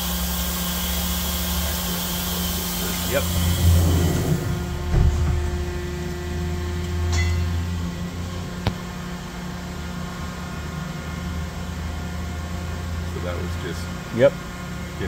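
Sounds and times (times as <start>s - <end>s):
machine spindle humming: 0.0s - 9.7s
machine door shutting: 3.3s - 5.8s.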